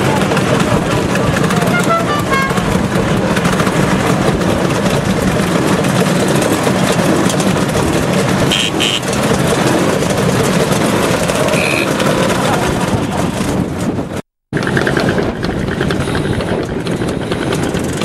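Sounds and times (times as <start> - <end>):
motor scooters engines running: 0.0 - 18.0
short horn beeps: 1.7 - 2.6, 8.5 - 9.1.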